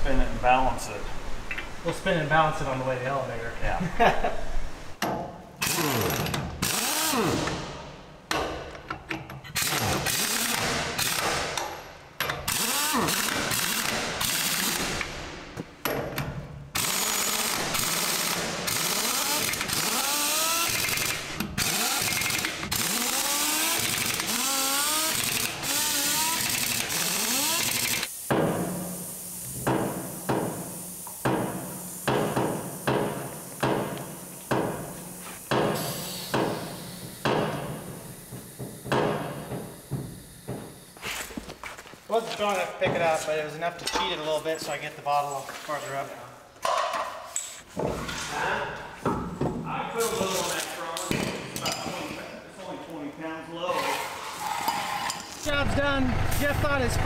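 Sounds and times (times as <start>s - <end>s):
pneumatic impact wrench hammering: 5.0s - 41.4s.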